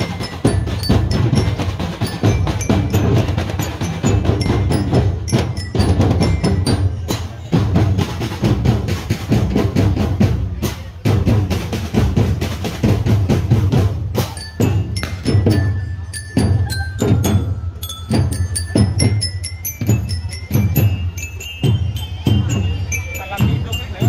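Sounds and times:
bell-like notes: 0.0 - 7.8, 14.1 - 24.0
marching drum band: 0.0 - 24.0.

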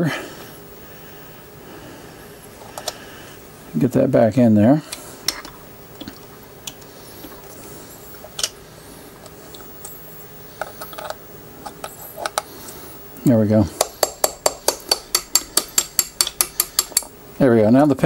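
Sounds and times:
hammer tapping on pin punch: 13.8 - 17.1.

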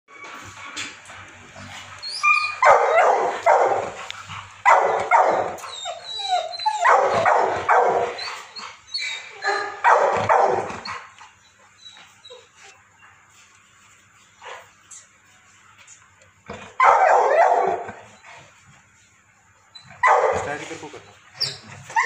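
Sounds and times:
large dog barking: 2.5 - 5.6, 6.7 - 8.2, 9.4 - 11.0, 16.7 - 18.0, 20.0 - 20.6.

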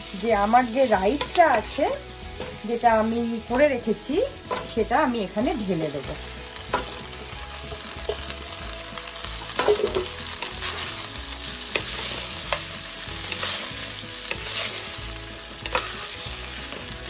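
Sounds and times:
food sizzling in a wok: 0.0 - 17.0
spatula scraping a pan: 9.5 - 17.0.

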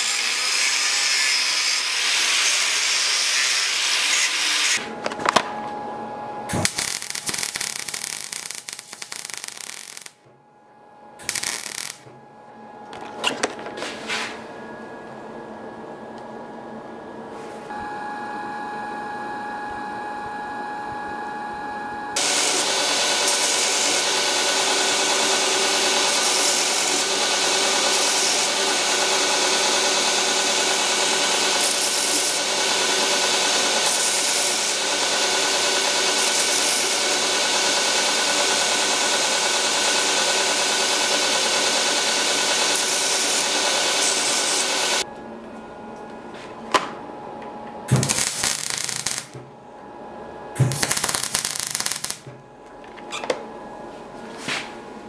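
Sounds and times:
belt grinder grinding metal: 0.0 - 4.8, 22.2 - 45.0, 47.9 - 49.4.

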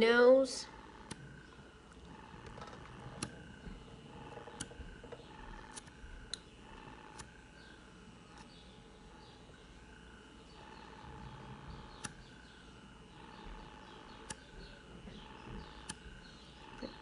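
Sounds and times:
suction device whining: 0.6 - 17.0
sharp little clicks: 0.7 - 3.6, 4.2 - 7.4, 11.8 - 12.4, 13.3 - 14.5, 15.2 - 17.0.

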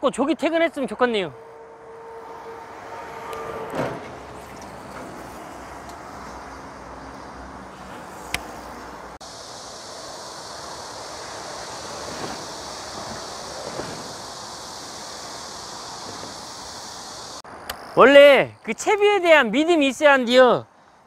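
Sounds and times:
road traffic noise: 0.0 - 21.0
truck passing: 0.6 - 17.7
bright hiss: 7.1 - 18.0.

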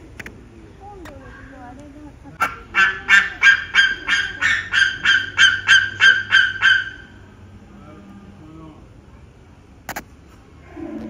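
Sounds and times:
loud honking calls: 2.4 - 8.4.

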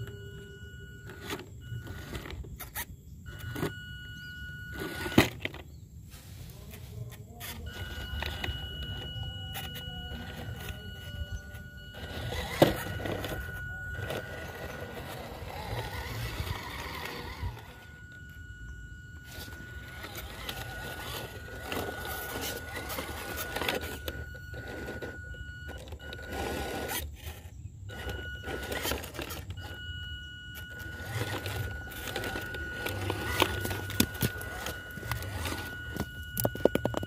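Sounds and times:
toy car motor whine: 0.0 - 5.6, 7.3 - 37.0
tyres crunching on rock: 30.7 - 37.0.

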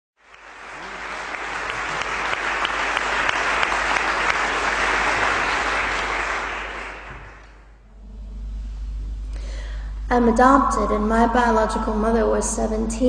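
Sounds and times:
audience applauding: 0.2 - 7.8.

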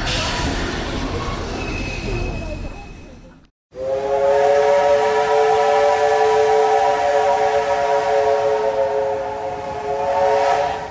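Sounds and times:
steam locomotive whistle chord: 3.7 - 10.9.

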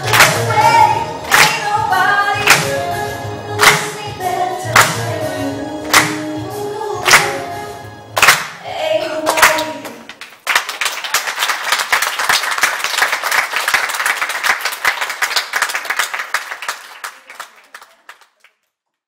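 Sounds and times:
singing with backing track: 0.0 - 10.1
audience applause: 10.1 - 18.7.

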